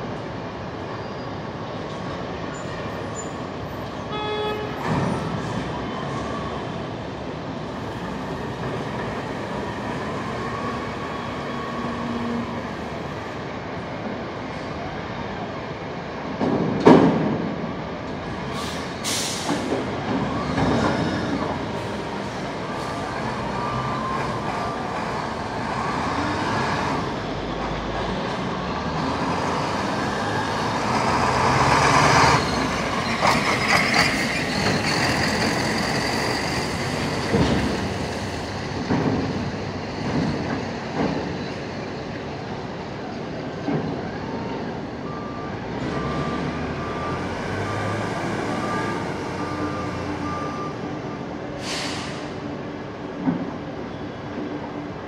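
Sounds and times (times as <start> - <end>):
heavy diesel engines running: 0.0 - 55.0
loud knocks and clanks: 16.4 - 17.6, 38.8 - 41.4
reversing beeper beeps: 44.2 - 51.0
short hiss: 51.6 - 52.3.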